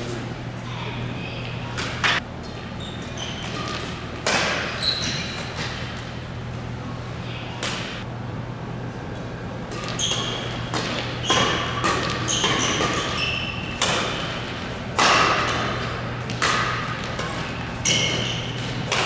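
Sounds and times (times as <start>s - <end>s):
shoes squeaking on floor: 2.7s - 5.9s, 9.8s - 14.5s, 17.8s - 18.8s
rackets smacking shuttlecock: 3.3s - 6.1s, 7.6s - 8.0s, 9.7s - 19.0s.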